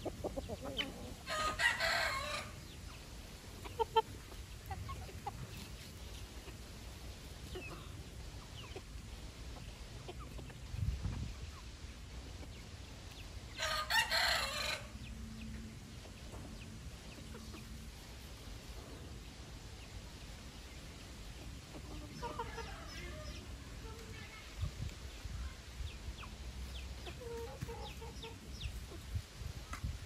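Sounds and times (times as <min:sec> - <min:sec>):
chickens clucking: 0:00.0 - 0:30.0
rooster crowing: 0:01.3 - 0:02.6, 0:13.6 - 0:14.9.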